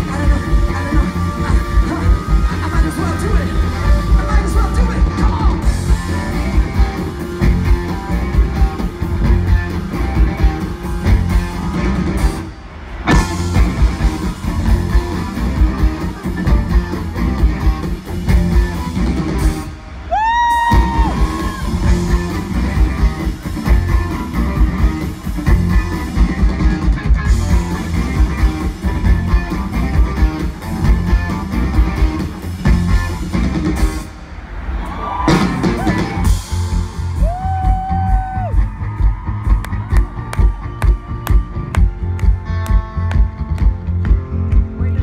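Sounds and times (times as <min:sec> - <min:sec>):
electric guitar: 0:00.0 - 0:34.2
live rock band playing: 0:00.0 - 0:34.4, 0:35.2 - 0:45.0.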